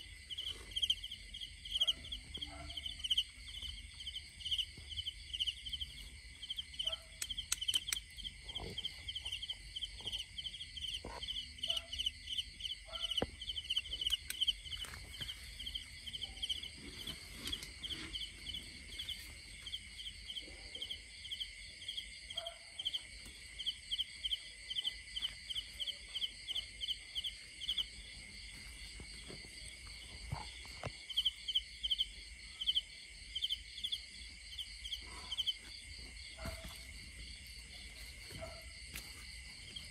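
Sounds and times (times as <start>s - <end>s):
crickets chirping: 0.0s - 39.9s.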